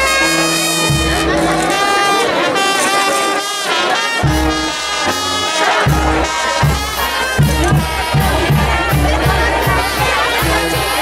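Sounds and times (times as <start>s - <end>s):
brass band playing: 0.0s - 11.0s.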